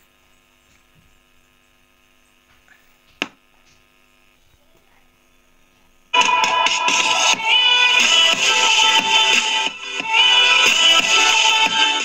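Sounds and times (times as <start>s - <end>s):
faint electrical hum: 0.0s - 12.0s
loud music through a speaker: 6.1s - 12.0s.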